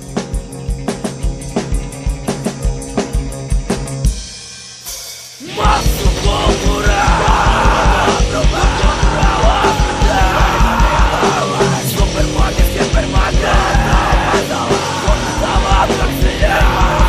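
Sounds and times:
fast drumming: 0.0s - 17.0s
punk band playing: 0.0s - 17.0s
shouted vocals: 5.4s - 17.0s.

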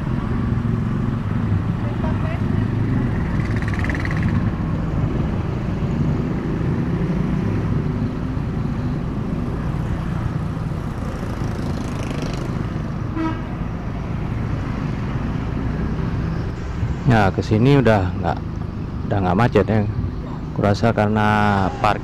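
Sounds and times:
vehicle engine and road noise: 0.0s - 22.0s
vehicle horn toot: 13.1s - 13.5s.

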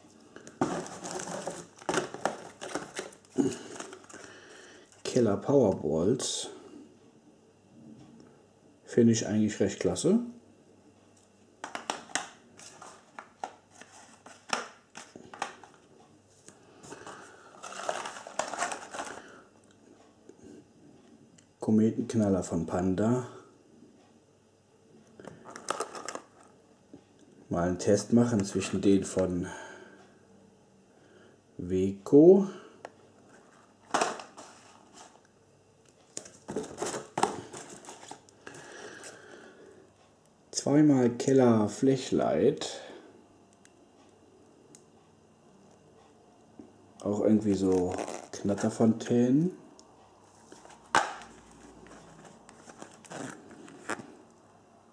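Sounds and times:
packaging rustling and crinkling: 0.4s - 4.3s, 16.9s - 19.4s, 25.3s - 26.5s, 36.1s - 39.1s, 47.4s - 48.7s, 50.3s - 54.3s
cardboard packets tapping on tile: 11.6s - 12.3s.

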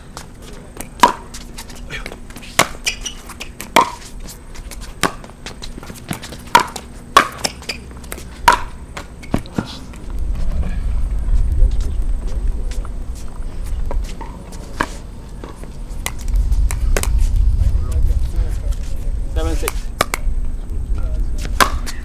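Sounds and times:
paddles hitting plastic ball: 5.0s - 10.0s, 19.7s - 20.3s
low rumble: 9.9s - 14.2s, 15.0s - 22.0s.

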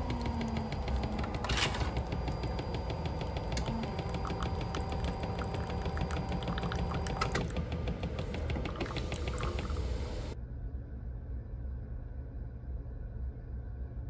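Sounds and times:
coffee machine low hum: 0.0s - 10.4s
coffee pouring into cup: 0.0s - 10.4s
steady machine tone: 0.0s - 10.4s.

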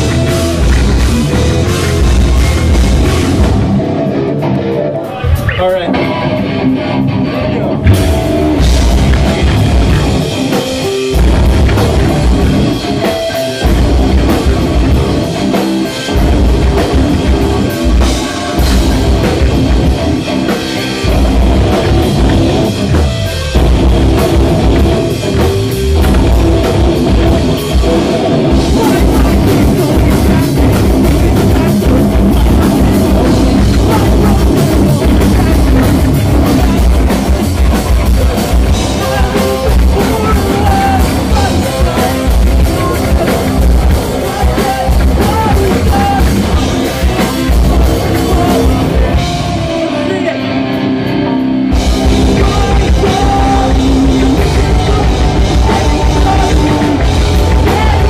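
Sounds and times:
heavy rock band playing: 0.0s - 58.0s.

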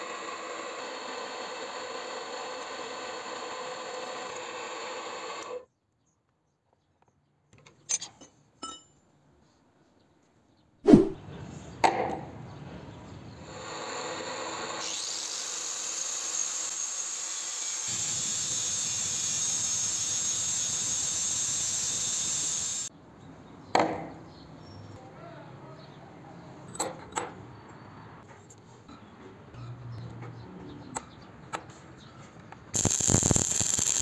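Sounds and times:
grinder grinding steel: 14.5s - 22.9s, 32.8s - 34.0s.

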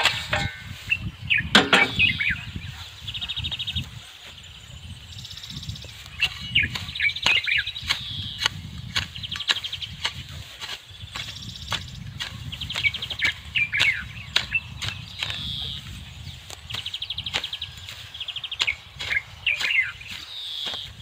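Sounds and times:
hoe chopping dry soil: 0.0s - 0.7s, 5.9s - 21.0s
bird chirping trills: 0.0s - 21.0s.

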